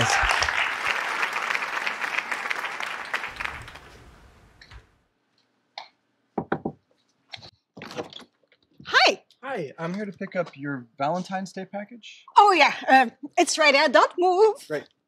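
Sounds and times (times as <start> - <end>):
audience applause: 0.0 - 4.2.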